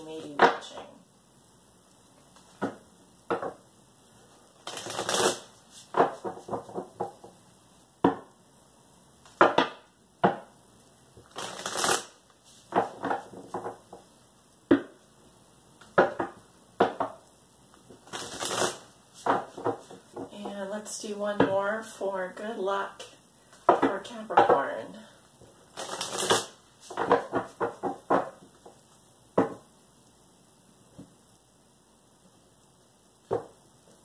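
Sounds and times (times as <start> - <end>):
cards tapping and flicking: 4.6 - 7.2, 11.3 - 14.0, 17.9 - 20.3, 25.8 - 28.8
cards sliding rasp: 11.4 - 12.2.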